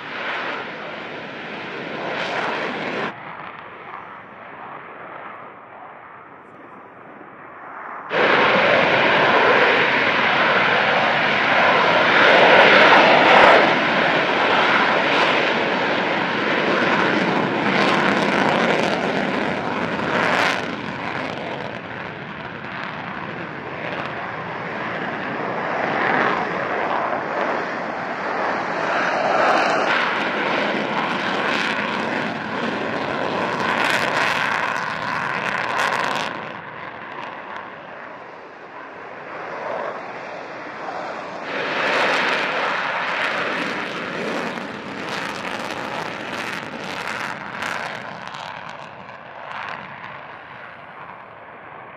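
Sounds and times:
fighter jet engines roaring: 0.0s - 51.9s
jet engine whine: 0.0s - 51.9s.

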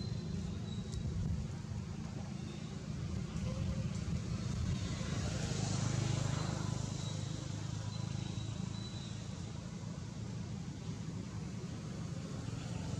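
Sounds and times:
low outdoor rumble: 0.0s - 5.6s.

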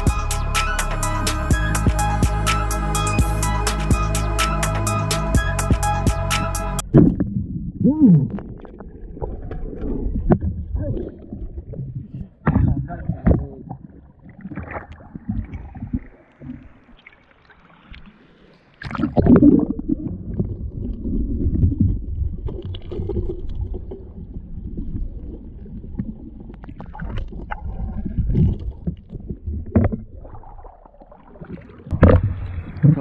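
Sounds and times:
muffled underwater rumble: 6.8s - 16.9s, 18.9s - 33.0s
river water splashing: 14.2s - 19.4s, 30.5s - 33.0s.

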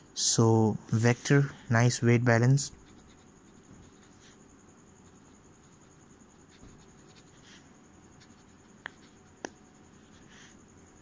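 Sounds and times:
pen nib scratching paper: 2.7s - 4.4s, 5.0s - 7.6s, 8.2s - 10.6s.

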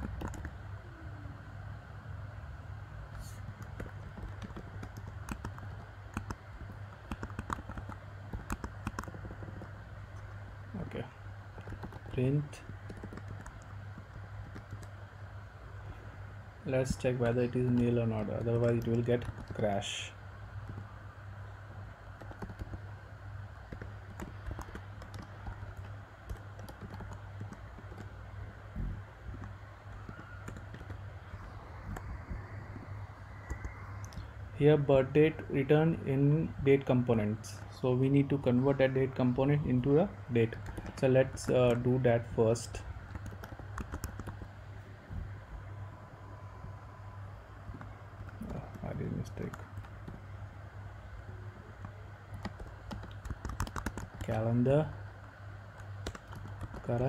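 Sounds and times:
keyboard typing: 0.0s - 0.6s, 3.4s - 10.4s, 11.5s - 15.0s, 17.2s - 19.8s, 20.6s - 20.9s, 22.1s - 22.9s, 23.6s - 28.6s, 29.2s - 34.3s, 38.8s - 44.6s, 47.7s - 50.3s, 51.6s - 57.0s
steady low hum: 0.0s - 57.0s
keyboard key clicks: 52.3s - 54.3s.

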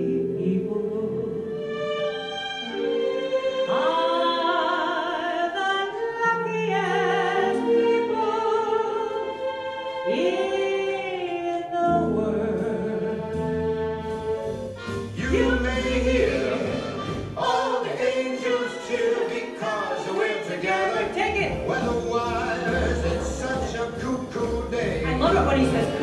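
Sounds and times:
woman singing with vibrato: 0.0s - 1.6s, 10.0s - 13.4s, 25.0s - 26.0s
instrumental backing music: 0.0s - 26.0s.

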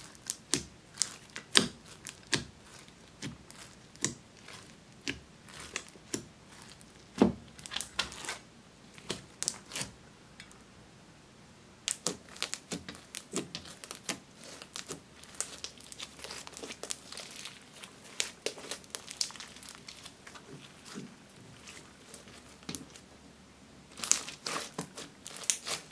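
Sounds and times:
slime crackling when kneaded: 0.0s - 10.0s, 11.8s - 23.1s, 23.9s - 25.9s.

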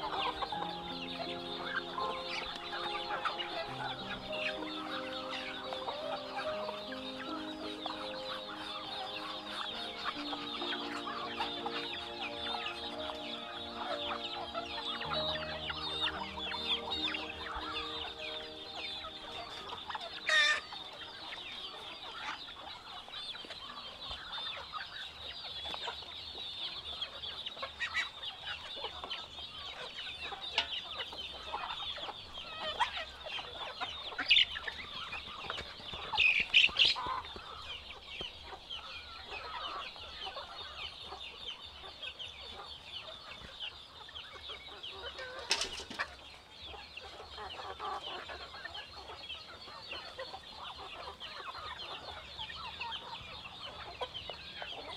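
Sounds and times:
sharp loud poultry calls: 0.0s - 24.2s
poultry clucking and calling: 0.0s - 54.9s.

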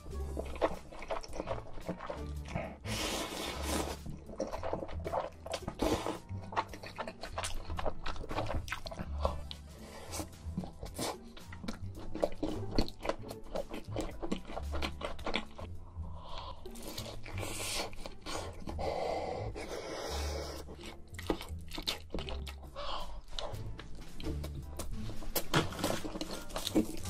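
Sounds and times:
background music with low bass: 0.0s - 27.0s
wet chewing: 0.0s - 27.0s
crunchy bites of food: 23.4s - 27.0s.

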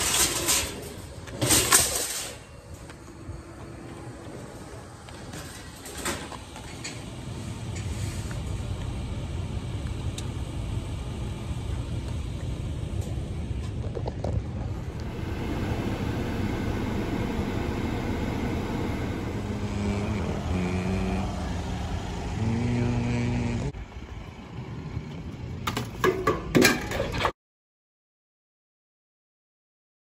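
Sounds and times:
shopping cart rattling on pavement: 0.0s - 2.5s.

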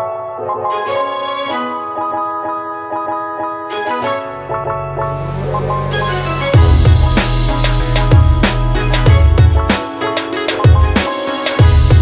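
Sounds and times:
electronic beat music: 4.0s - 12.0s.

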